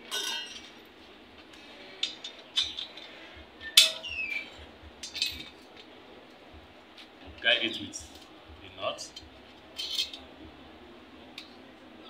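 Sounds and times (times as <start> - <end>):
metal parts clinking: 0.0 - 0.8, 1.9 - 4.4, 5.0 - 5.6, 9.1 - 10.2.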